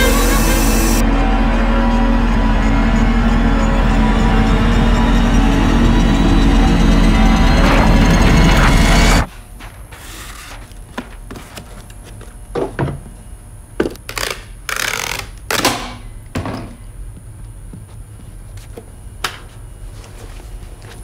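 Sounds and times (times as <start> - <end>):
packing tape tearing: 14.0 - 15.8.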